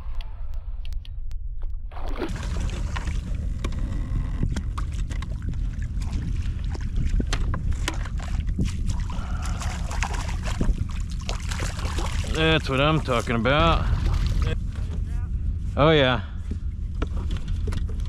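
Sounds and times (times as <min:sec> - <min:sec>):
wind rumbling on microphone: 0:00.0 - 0:18.0
landing net into water: 0:04.8 - 0:13.3
fish splashing at surface: 0:07.8 - 0:12.4.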